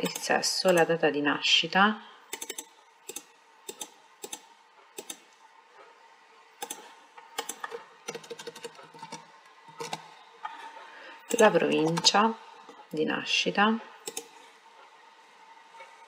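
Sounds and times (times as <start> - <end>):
computer mouse clicks: 2.3 - 5.3, 6.6 - 10.1, 14.0 - 14.3.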